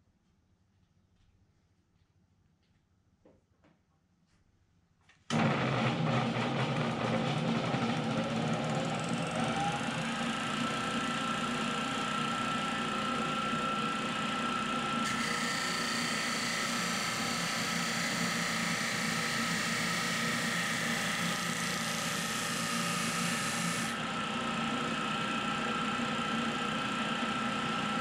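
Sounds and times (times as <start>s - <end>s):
disc sander motor humming: 8.2s - 28.0s
wood grinding on sanding disc: 15.1s - 24.0s.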